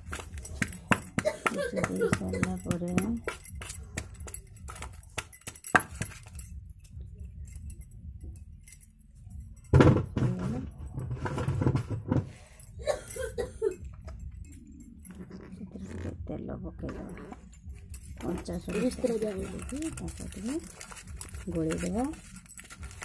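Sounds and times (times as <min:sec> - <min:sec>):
pestle knocking on steel bowl: 0:00.1 - 0:04.1.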